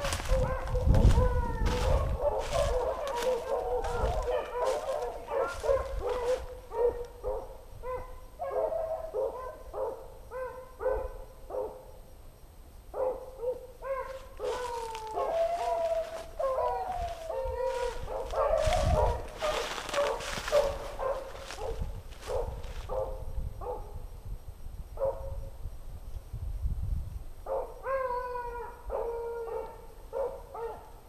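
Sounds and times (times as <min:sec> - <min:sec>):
leaves crackling underfoot: 0:00.0 - 0:07.1, 0:14.0 - 0:23.0
dogs baying and yelping: 0:00.0 - 0:11.2, 0:13.1 - 0:23.2.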